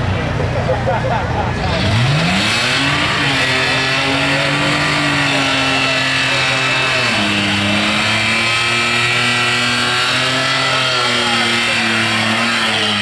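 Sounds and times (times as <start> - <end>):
car engine revving high: 1.1 - 13.0.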